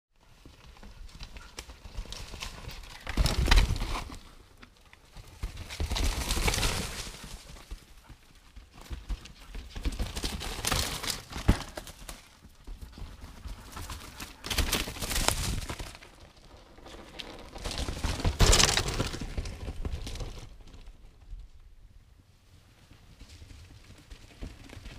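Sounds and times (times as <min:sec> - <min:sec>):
bike tyres crunching on rocks: 0:00.4 - 0:04.5, 0:05.4 - 0:07.7, 0:13.7 - 0:21.0.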